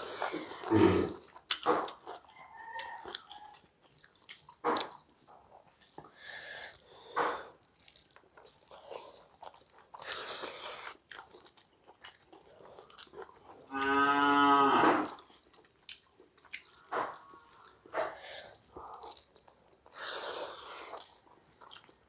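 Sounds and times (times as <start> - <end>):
chewing and biting: 0.0 - 14.2, 14.9 - 22.0.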